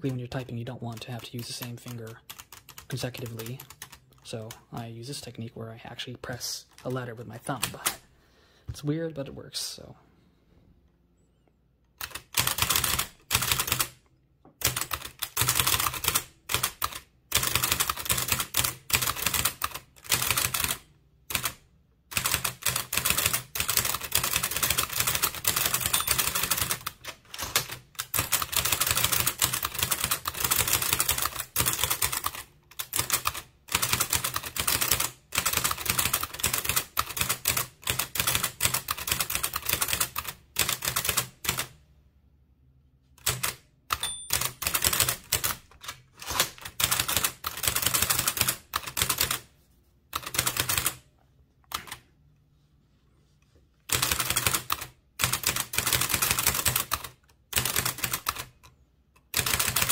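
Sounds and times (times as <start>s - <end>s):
typewriter typing: 12.0s - 14.0s, 14.6s - 41.7s, 43.2s - 49.4s, 50.1s - 51.0s, 53.9s - 59.9s.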